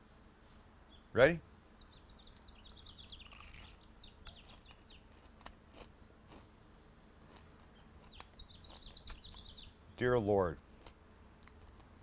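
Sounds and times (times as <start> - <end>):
birds chirping: 0.6 - 12.0
faint crunchy chewing: 2.3 - 9.9, 10.6 - 12.0.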